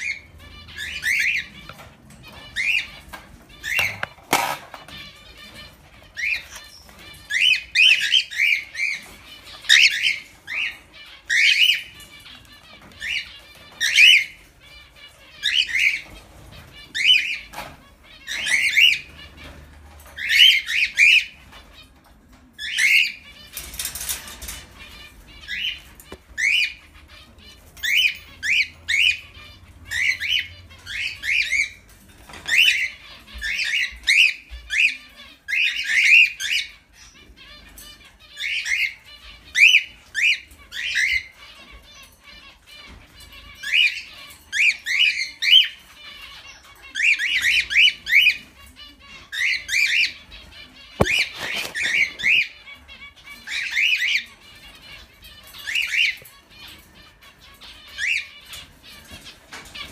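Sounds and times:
cockatiels chirping: 0.0 - 59.9
rustling: 2.5 - 7.2, 50.6 - 52.9.

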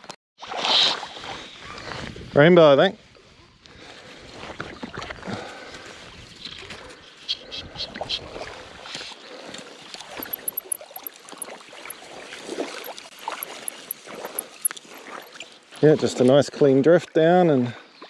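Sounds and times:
shallow river water sloshing: 8.3 - 15.8
fly line rustling: 10.2 - 11.9, 12.8 - 15.3.

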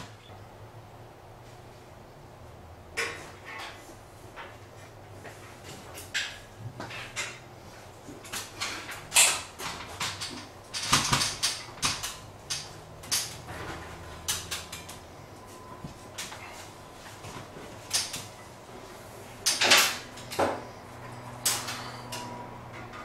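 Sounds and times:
clatter of objects: 8.1 - 15.0.

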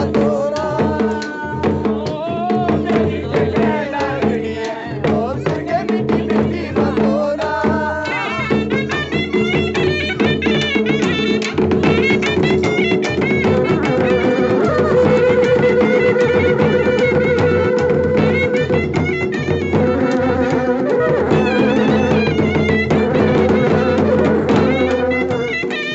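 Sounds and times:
small drums beat: 0.0 - 25.9
wind instruments melody: 7.9 - 25.9.

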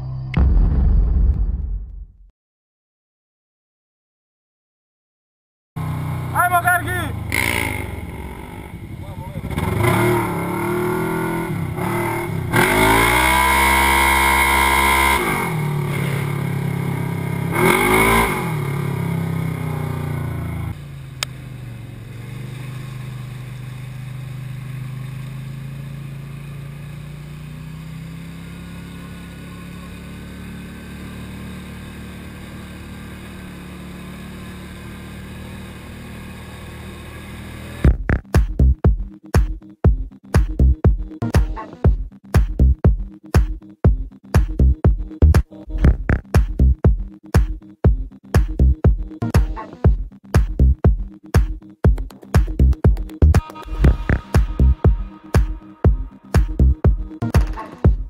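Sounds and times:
quieter engine running steadily: 5.8 - 13.2, 14.2 - 38.8
loud engine revving: 5.8 - 38.2
electronic dance music: 6.4 - 7.1, 37.9 - 58.0.

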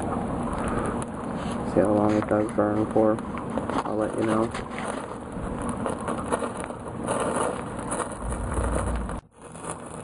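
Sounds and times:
rain patter: 0.0 - 10.0
sap sizzling and crackling: 0.0 - 10.0
low rumble: 5.2 - 9.7.

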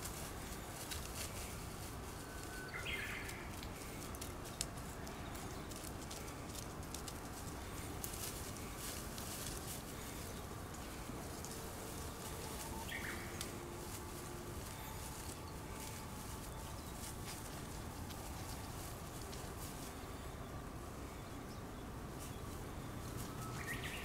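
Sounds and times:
faint rustles and clicks: 0.0 - 24.0
outdoor background hiss: 0.0 - 24.0
faint high call: 11.4 - 17.4.

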